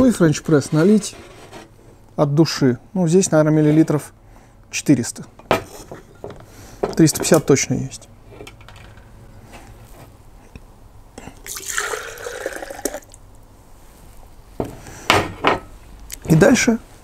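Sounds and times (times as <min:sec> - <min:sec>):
milk pouring into container: 0:11.5 - 0:13.2.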